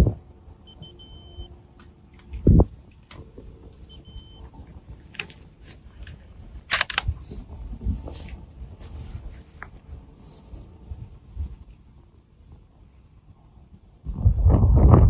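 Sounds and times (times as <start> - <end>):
rifle bolt clicks: 6.0 - 7.1.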